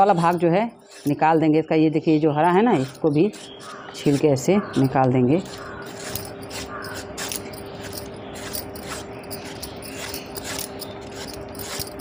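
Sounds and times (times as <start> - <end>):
vegetable peeler scraping mango: 0.0 - 1.5, 2.3 - 12.0.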